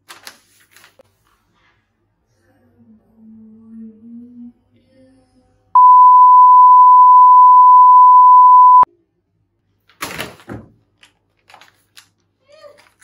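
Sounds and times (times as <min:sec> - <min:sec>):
censor bleep: 0:05.8 - 0:08.9.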